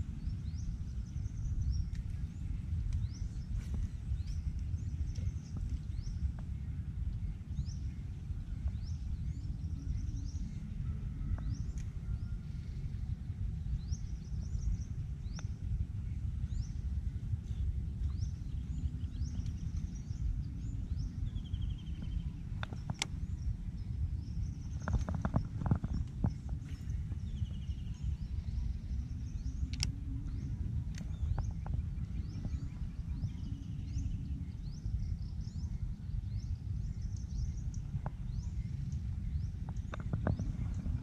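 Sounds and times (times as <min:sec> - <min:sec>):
low rumble: 0:00.0 - 0:41.0
bird chirping: 0:17.6 - 0:41.0.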